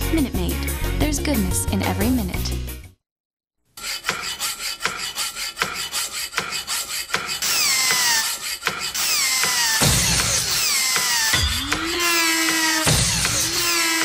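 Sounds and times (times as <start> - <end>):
rhythmic rasping strokes: 3.8 - 14.0
harsh grinding with falling whines: 9.0 - 14.0.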